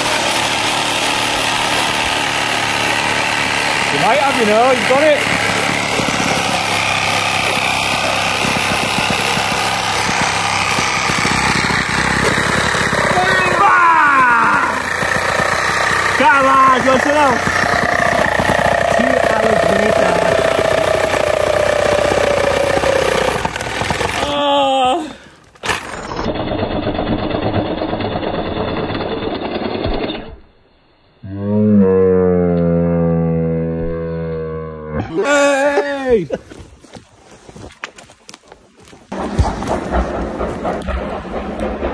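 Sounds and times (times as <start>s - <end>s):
hand saw sawing log: 0.0s - 24.4s
power saw cutting log: 0.0s - 24.5s, 25.5s - 30.4s, 39.1s - 41.9s.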